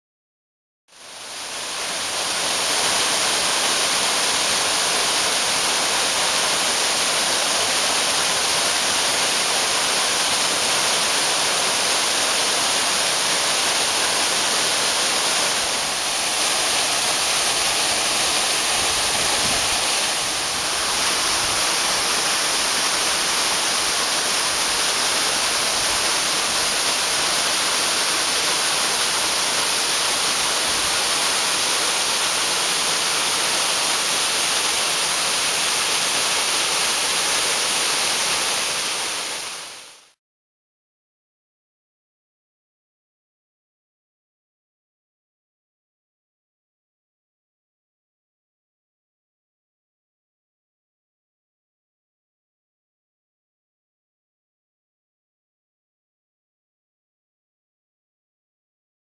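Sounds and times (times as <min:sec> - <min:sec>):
waterfall rushing onto rocks: 0:01.0 - 0:40.2.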